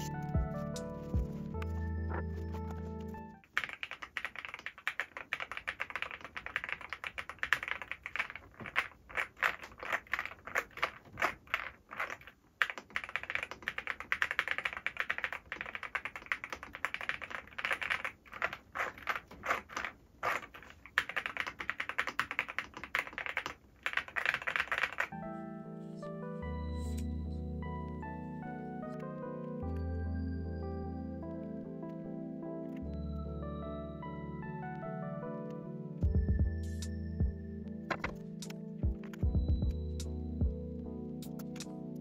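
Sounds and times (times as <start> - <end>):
fast typing on mechanical keyboard: 3.4 - 25.2.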